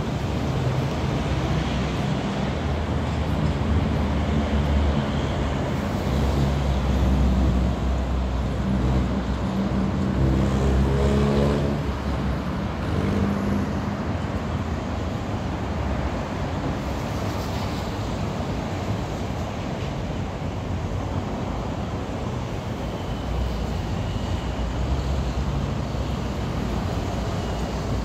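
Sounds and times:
road traffic: 0.0s - 28.0s
vehicle accelerating: 9.8s - 12.2s.

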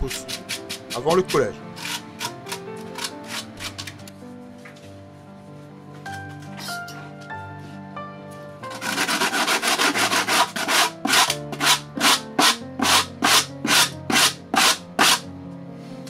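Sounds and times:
sanding block rubbing plastic: 8.8s - 15.2s.

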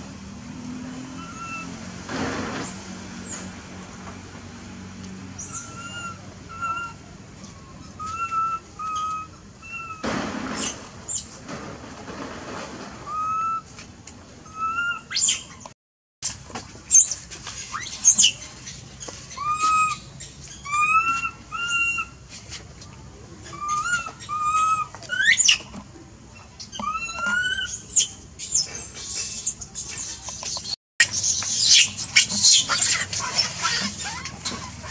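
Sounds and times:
rising squeaks: 26.4s - 34.9s
high chirping calls: 26.6s - 33.1s.

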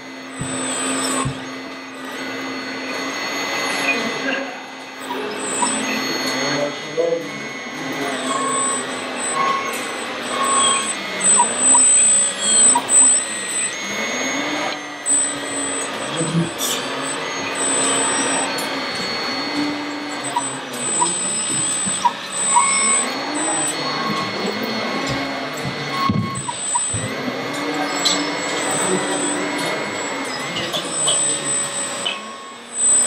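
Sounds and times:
small electric motors whining: 0.0s - 33.0s
hum of voices: 3.7s - 32.6s.

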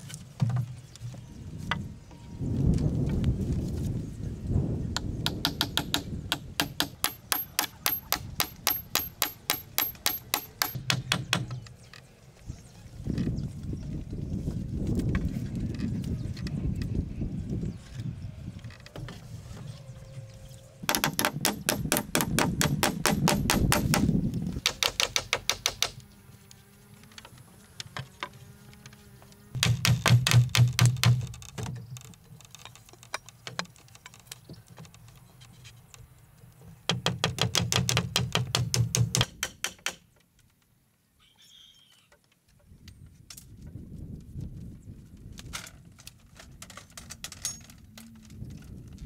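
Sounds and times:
tool knocking on bamboo: 5.0s - 11.6s, 20.9s - 26.0s, 29.6s - 31.7s, 36.9s - 40.0s.

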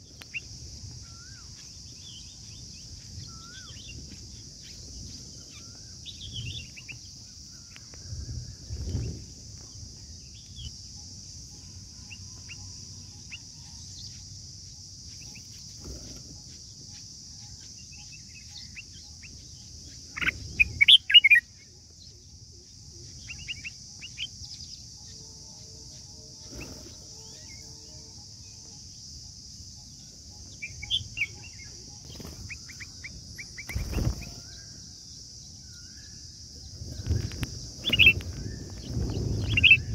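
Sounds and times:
birds chirping: 8.8s - 39.9s.

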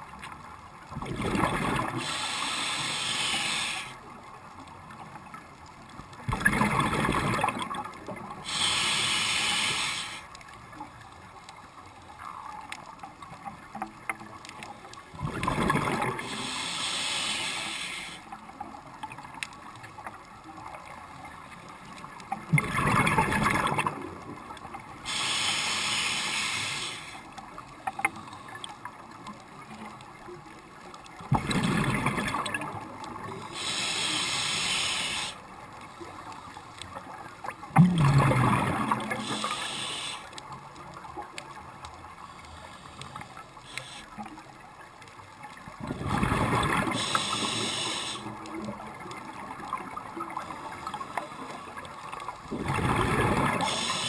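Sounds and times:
quiet water noise: 0.0s - 54.0s
exhaust bubbles: 1.0s - 2.0s, 15.2s - 16.3s, 37.7s - 39.5s, 45.8s - 47.5s, 52.5s - 54.0s
regulator hissing on inhale: 1.8s - 4.1s, 8.4s - 10.4s, 16.2s - 18.4s, 25.0s - 27.4s, 33.3s - 35.5s, 39.0s - 40.4s, 42.2s - 44.3s, 46.8s - 48.4s, 50.7s - 51.8s, 53.6s - 54.0s.

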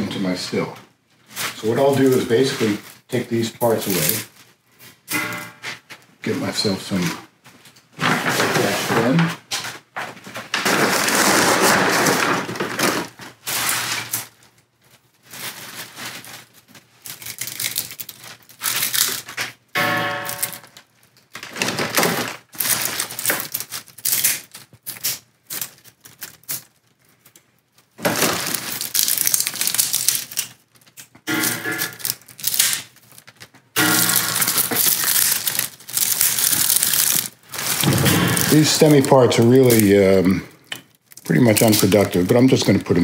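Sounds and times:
plastic bag crinkling: 1.2s - 4.8s, 10.4s - 43.0s
dried leaves crackling: 14.9s - 20.8s, 22.5s - 27.4s, 28.0s - 40.4s, 41.0s - 43.0s.

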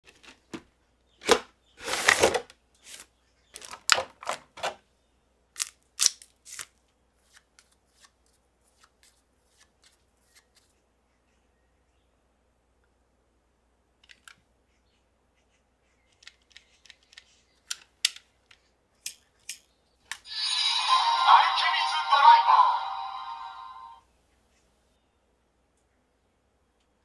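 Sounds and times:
toy packaging being opened: 1.2s - 3.0s.

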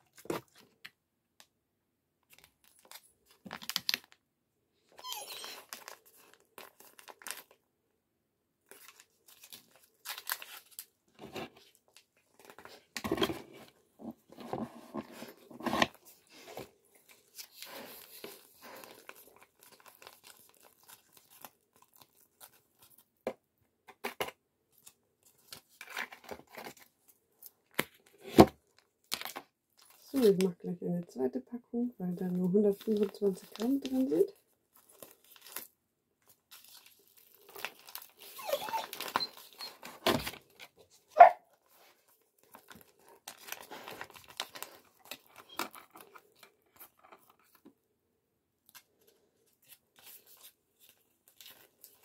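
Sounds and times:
food pouch crinkling and tearing: 2.2s - 4.2s, 5.3s - 7.6s, 8.6s - 11.0s, 15.8s - 23.1s, 24.8s - 30.4s, 32.7s - 34.1s, 34.7s - 40.9s, 41.6s - 47.7s, 48.6s - 52.0s.

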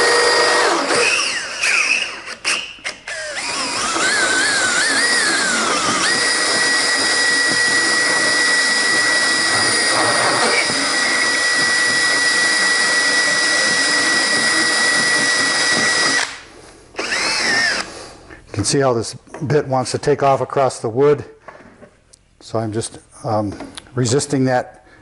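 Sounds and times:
drill whining and grinding wood: 0.0s - 18.0s.

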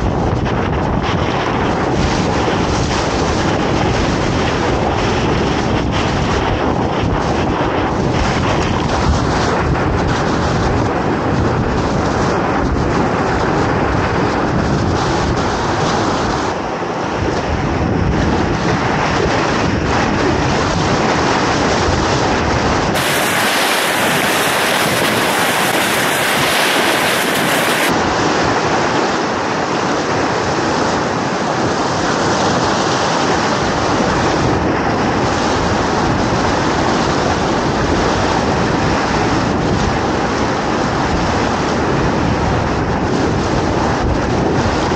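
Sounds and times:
whitewater rushing: 22.9s - 27.9s.

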